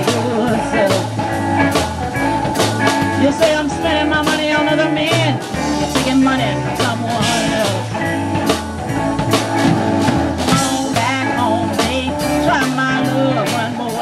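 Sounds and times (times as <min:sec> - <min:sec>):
bass line: 0:00.0 - 0:14.0
drum kit beats: 0:00.0 - 0:14.0
electric guitar: 0:00.0 - 0:14.0.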